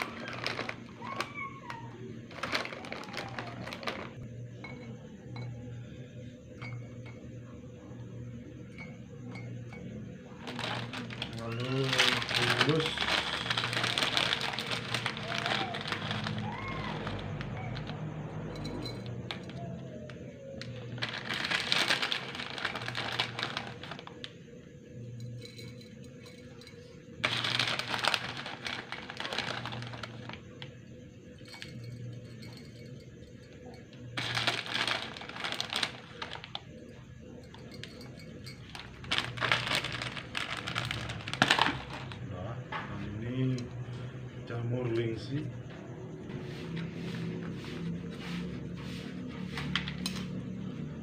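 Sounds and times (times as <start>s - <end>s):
plastic pouch rustling: 0.0s - 1.4s, 2.2s - 4.2s, 10.4s - 17.2s, 20.9s - 24.3s, 27.2s - 30.5s, 34.2s - 36.6s, 38.7s - 42.2s.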